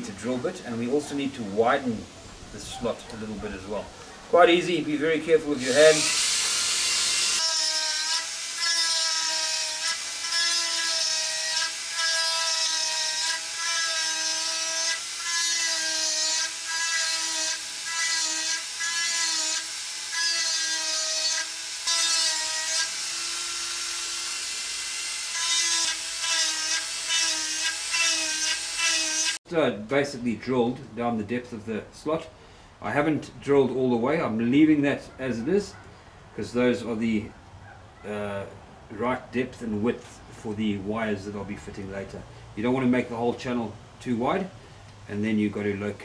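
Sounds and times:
drill bit rasping into wood: 5.6s - 29.4s
rotary tool whining: 5.6s - 29.4s.

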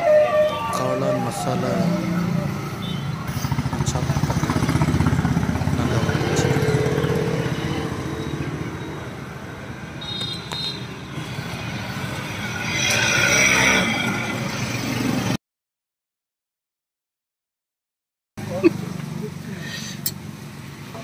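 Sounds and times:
vehicle engine throbbing: 0.0s - 15.4s.

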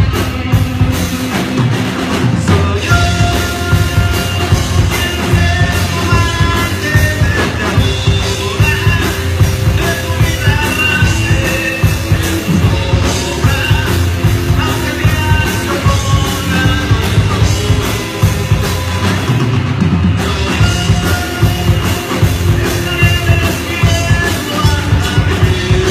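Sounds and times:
bass guitar: 0.0s - 25.9s
drum kit: 0.0s - 25.9s
electric guitar: 0.0s - 25.9s
person singing: 2.3s - 19.3s, 20.2s - 25.9s.

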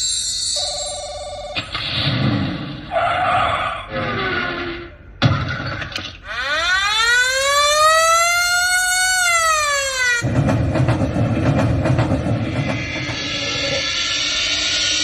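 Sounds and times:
siren-like pitched tone: 6.2s - 10.2s
dense rattling noise: 10.2s - 15.0s.

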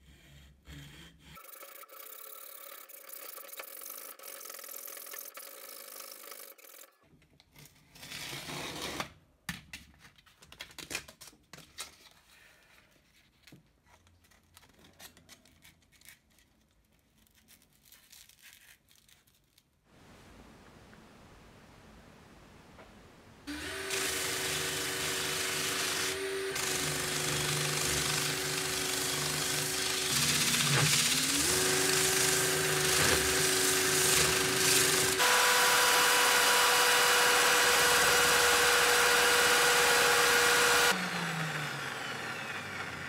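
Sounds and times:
loud tear: 23.5s - 40.9s
hacksaw sawing through steel rod: 23.5s - 41.0s
sandpaper rustling and clicking: 25.1s - 35.2s.

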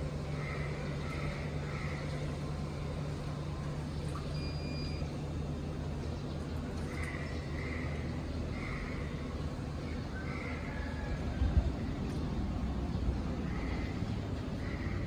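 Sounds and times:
low electric hum: 0.0s - 15.0s
short high beep: 4.3s - 5.1s.

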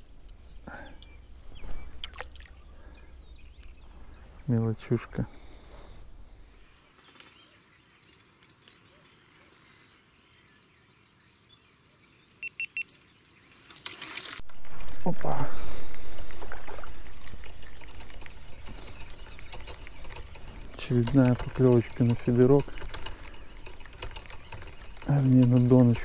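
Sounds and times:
insects chirping: 12.0s - 26.0s.

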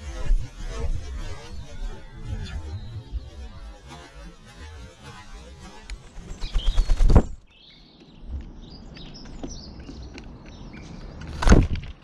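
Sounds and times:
small birds chirping: 5.7s - 11.4s
pigeon wings flapping: 5.8s - 7.4s.

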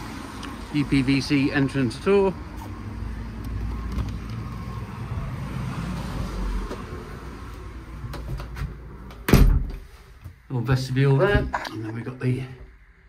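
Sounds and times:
door closing with a thud: 8.1s - 9.9s.

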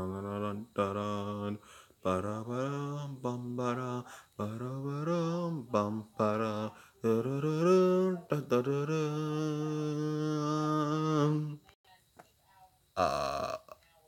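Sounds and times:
person humming a tune: 0.0s - 11.6s, 13.0s - 13.8s.

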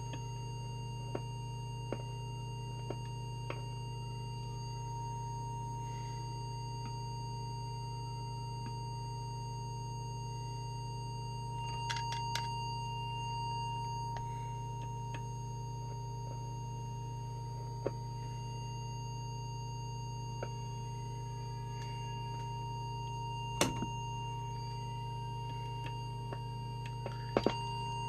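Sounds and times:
low mains hum: 0.0s - 28.0s
steady pure test tone: 0.0s - 28.0s.

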